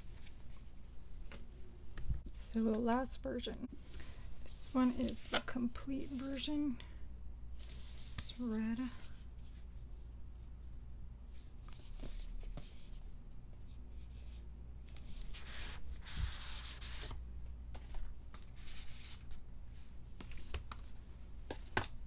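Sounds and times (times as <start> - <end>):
paper and cardboard rustling: 4.7 - 6.6.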